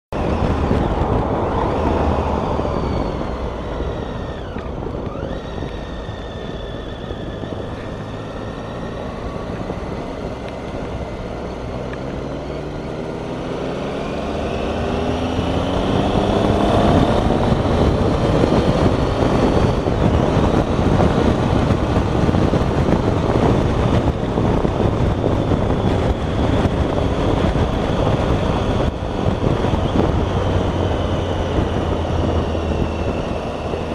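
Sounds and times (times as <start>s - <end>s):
motorcycle engine accelerating: 0.1s - 33.9s
wind rush on microphone: 0.1s - 33.9s.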